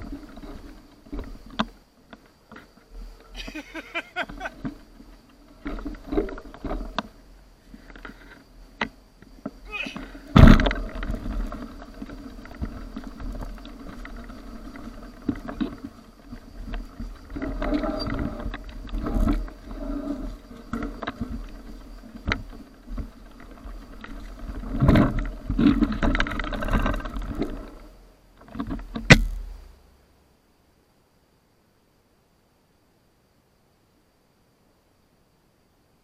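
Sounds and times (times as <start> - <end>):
bike tyres crunching on gravel: 0.0 - 29.7
sharp knocks over bumps: 8.8 - 14.2, 28.4 - 29.6
bike and camera mount rattling: 20.4 - 27.8.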